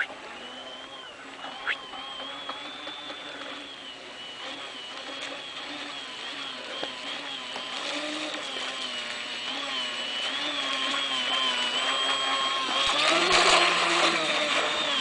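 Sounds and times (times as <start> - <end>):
electric motor whining: 0.0 - 15.0.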